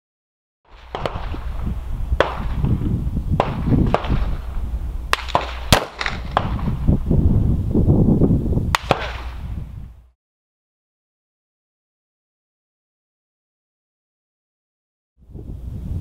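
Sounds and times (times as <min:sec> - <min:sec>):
rifle gunshots: 0:00.7 - 0:02.8, 0:03.4 - 0:06.8, 0:08.8 - 0:09.4.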